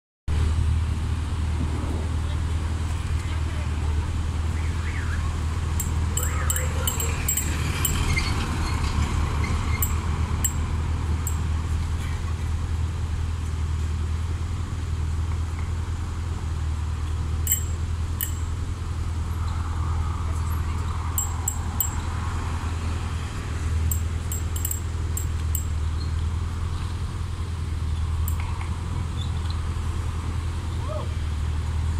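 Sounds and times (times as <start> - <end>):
low traffic rumble: 0.3 - 31.9
faint metallic clicks and jingles: 5.7 - 8.4, 9.7 - 11.5, 17.4 - 18.6, 20.8 - 22.2, 23.9 - 26.2, 28.2 - 28.7.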